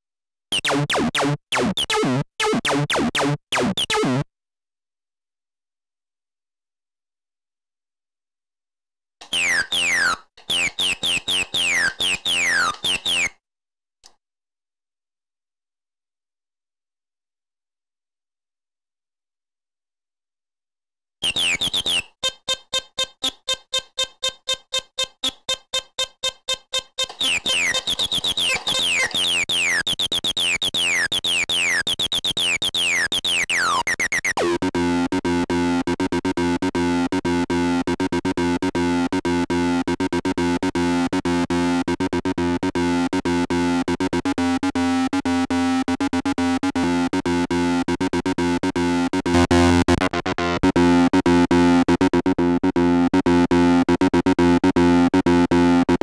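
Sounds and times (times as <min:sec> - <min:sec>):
synthesizer bassline: 0:00.5 - 0:04.3, 0:09.2 - 0:13.3, 0:27.1 - 0:56.0.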